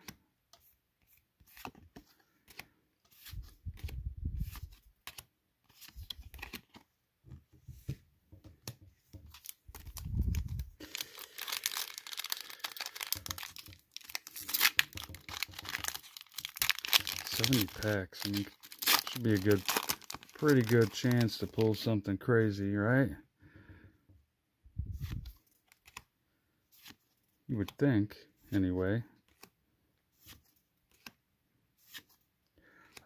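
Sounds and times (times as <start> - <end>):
trading cards handled: 0.0 - 21.9, 24.8 - 26.1, 28.4 - 29.6, 30.2 - 31.2, 31.8 - 33.0
foil wrapper tearing and crinkling: 9.7 - 21.4.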